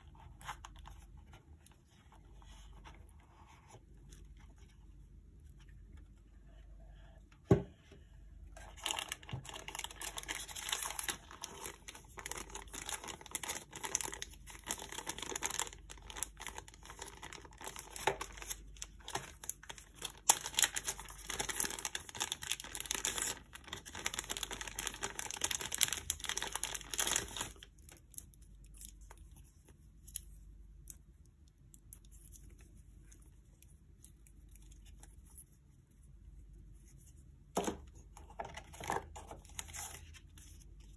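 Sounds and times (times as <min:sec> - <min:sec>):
plastic bag crinkling: 0:08.6 - 0:28.2.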